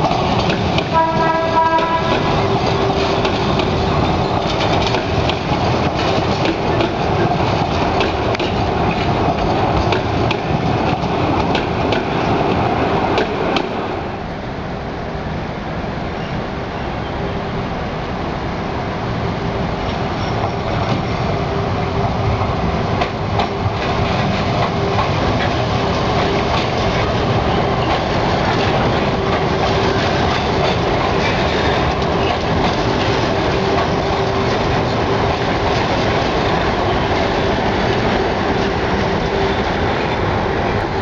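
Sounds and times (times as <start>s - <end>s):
wheel clicks on rail: 0.0s - 13.8s
steady train whine: 0.0s - 41.0s
train wheels rumbling on rail: 0.0s - 41.0s.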